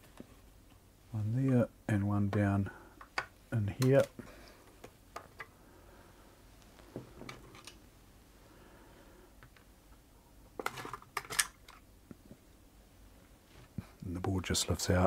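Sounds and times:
plastic clicks and rattles: 0:10.6 - 0:11.8.

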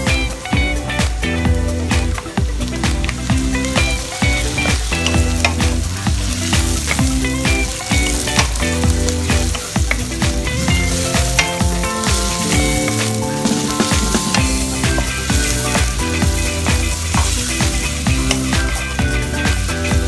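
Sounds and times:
background music with steady beat: 0:00.0 - 0:20.0
chicken sizzling in a frying pan: 0:00.0 - 0:20.0
wooden spatula stirring: 0:04.4 - 0:17.6.

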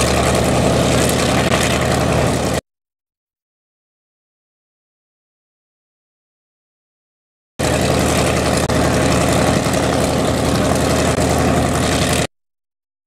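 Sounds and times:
propeller plane engine idling: 0:00.0 - 0:02.6, 0:07.6 - 0:12.3.

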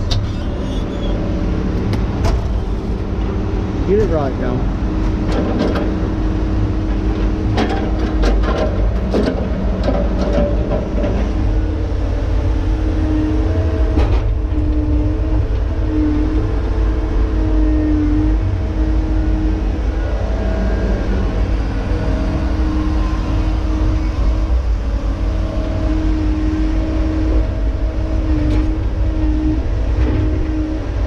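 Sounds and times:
boom hydraulic whine: 0:00.0 - 0:31.0
diesel engine and hydraulics running: 0:00.0 - 0:31.0.

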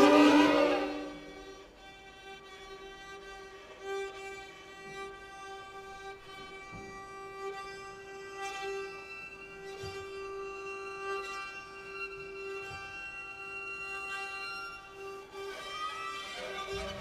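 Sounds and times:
chamber ensemble playing: 0:00.0 - 0:01.5
violin holding a long note: 0:00.0 - 0:17.0.

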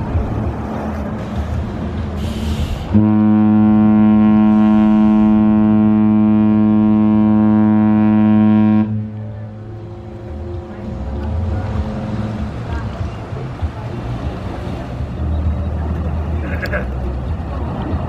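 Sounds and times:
harbour noise: 0:00.0 - 0:18.0
ship horn long deep blast: 0:02.2 - 0:13.0.

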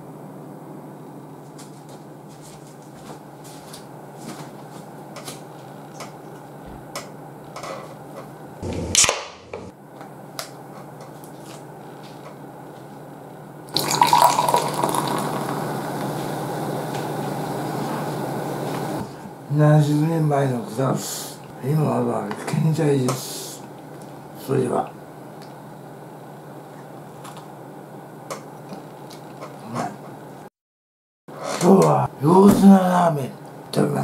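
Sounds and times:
beer can cracked open: 0:09.0 - 0:09.4
beer poured into glass foaming: 0:13.7 - 0:16.0.

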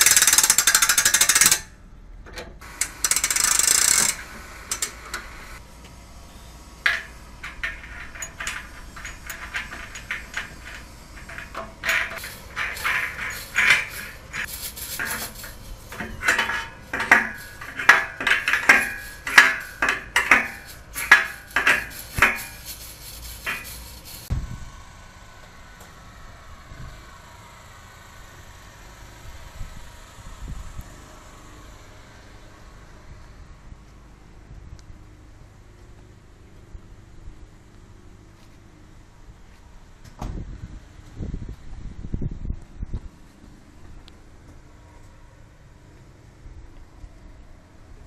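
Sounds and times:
metal clinking and clanking: 0:06.8 - 0:24.3.

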